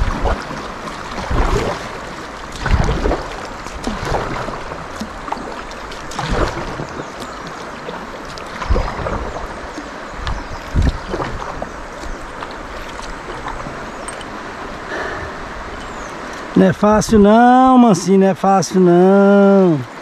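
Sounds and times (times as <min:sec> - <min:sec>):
low thumps and splashes: 0:00.0 - 0:18.1
river water rushing: 0:00.0 - 0:20.0.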